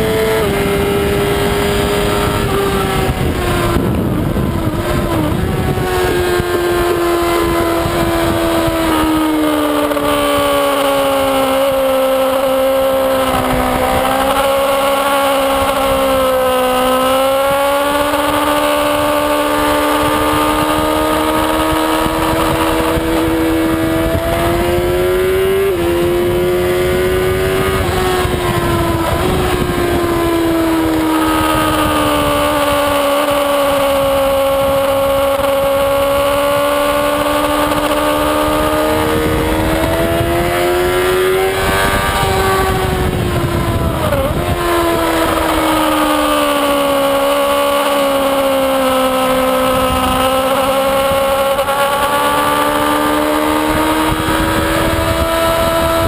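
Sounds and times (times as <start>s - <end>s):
motorcycle engine running hard: 0.0s - 56.0s
wind rush on microphone: 0.0s - 56.0s.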